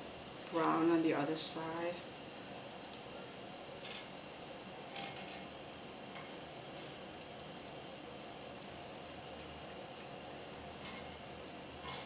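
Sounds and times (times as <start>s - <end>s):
batter sizzling in a pan: 0.0s - 12.0s
needle scraping a pan: 3.8s - 4.2s, 4.8s - 7.0s, 10.8s - 12.0s.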